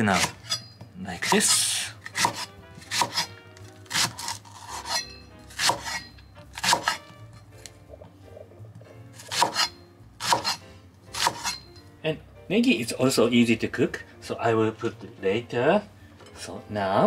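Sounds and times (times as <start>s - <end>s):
soft background music: 0.0s - 17.0s
knife cutting onto wooden board: 1.2s - 7.2s, 9.2s - 11.6s.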